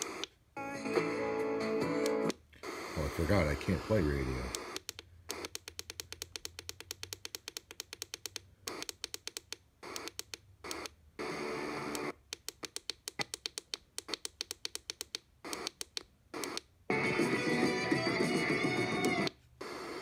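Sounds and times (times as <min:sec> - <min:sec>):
radio tuning clicks: 0:00.0 - 0:00.4, 0:01.9 - 0:16.7
radio static: 0:02.6 - 0:05.4.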